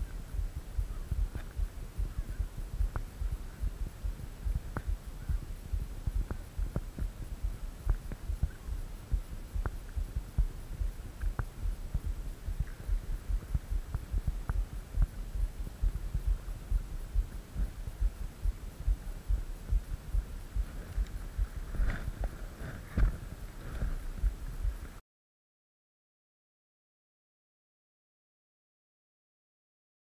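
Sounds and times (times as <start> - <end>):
camera handling thumps and rumble: 21.7 - 23.2.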